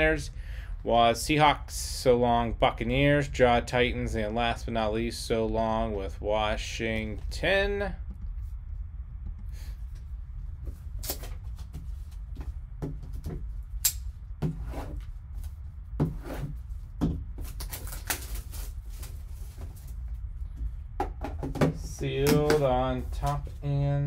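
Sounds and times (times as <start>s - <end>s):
steady low hum: 0.0s - 24.0s
plastic crinkling: 17.4s - 20.0s.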